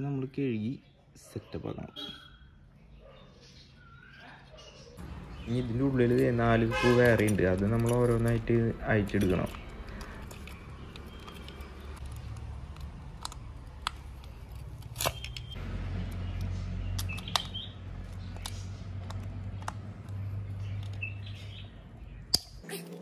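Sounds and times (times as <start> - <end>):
bird chirps: 0.6 - 6.2, 16.2 - 18.9, 20.1 - 22.7.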